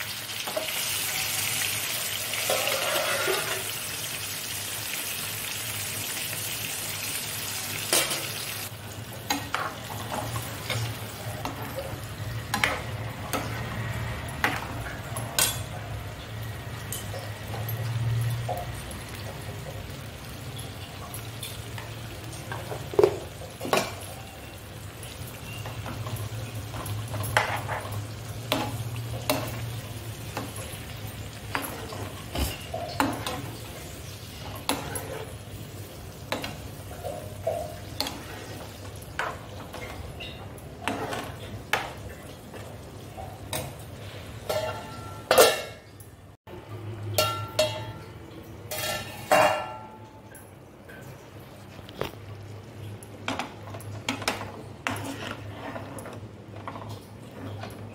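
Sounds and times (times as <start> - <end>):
prawns sizzling in oil: 0.0 - 45.7, 51.0 - 57.9
metal spoon scraping a pan: 2.2 - 3.8, 25.4 - 42.7, 48.7 - 49.8, 53.3 - 57.9.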